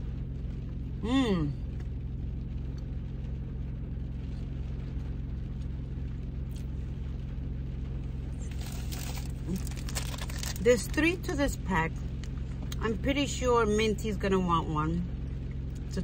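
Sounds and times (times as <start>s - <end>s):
car engine idling: 0.0s - 16.0s
rustling: 8.4s - 10.6s.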